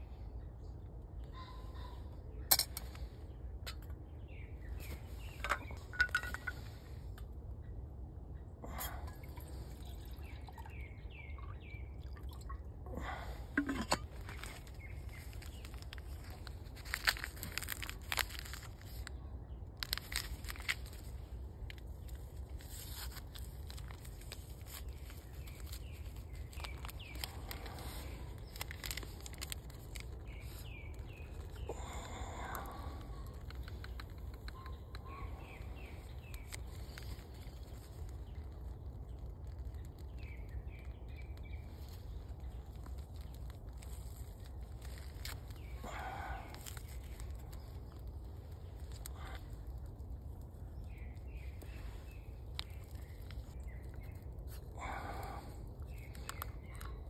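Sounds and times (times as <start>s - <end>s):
birds chirping: 0.0s - 7.8s, 8.6s - 17.2s, 24.8s - 57.0s
clinks of camp cooking gear: 2.5s - 3.0s, 5.2s - 6.7s, 13.5s - 14.7s.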